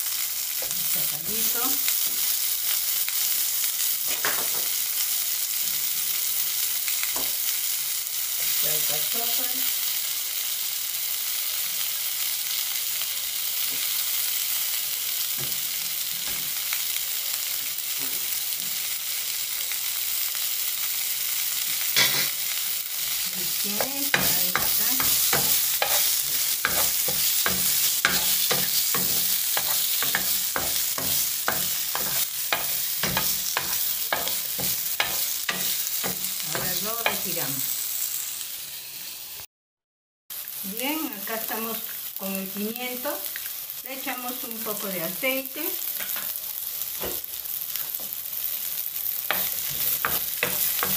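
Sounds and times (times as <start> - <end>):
vegetables sizzling in oil: 0.0 - 39.5, 40.3 - 50.9
wooden spoon scraping a pan: 23.7 - 37.4.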